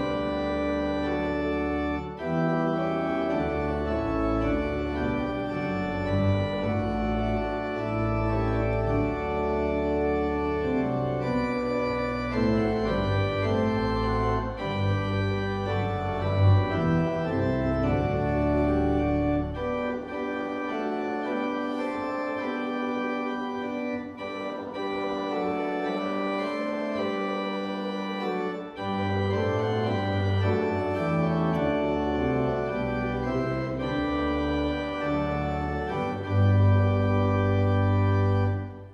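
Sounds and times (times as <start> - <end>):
church organ chords: 0.0 - 38.9.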